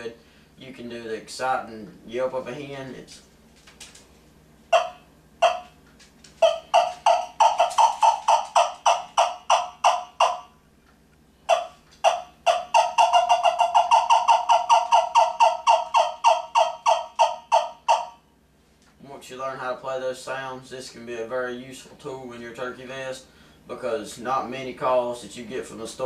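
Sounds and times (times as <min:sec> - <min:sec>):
turkey call yelps: 0:04.7 - 0:05.8, 0:06.4 - 0:10.6, 0:11.5 - 0:18.3.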